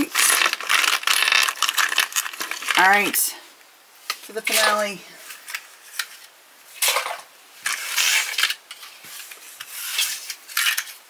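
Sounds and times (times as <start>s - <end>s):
objects rubbing and scraping: 6.9s - 11.0s.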